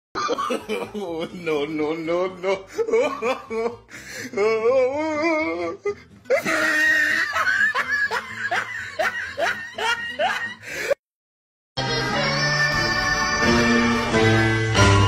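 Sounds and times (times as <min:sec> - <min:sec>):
loud laughter: 0:00.2 - 0:03.8, 0:06.3 - 0:11.0
wavering vocal cry: 0:00.4 - 0:10.6.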